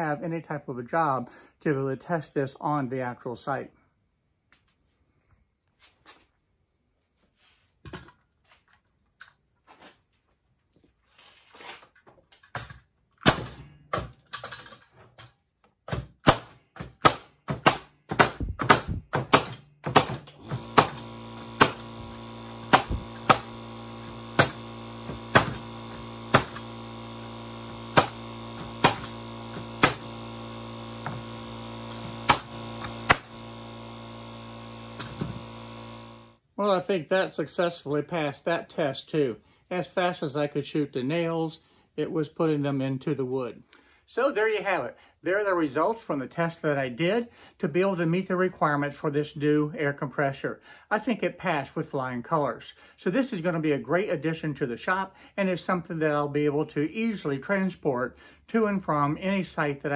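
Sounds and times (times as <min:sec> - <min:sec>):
nail gun shots: 0:13.2 - 0:14.1, 0:15.9 - 0:34.2, 0:34.8 - 0:35.6
air compressor motor running: 0:16.4 - 0:36.4.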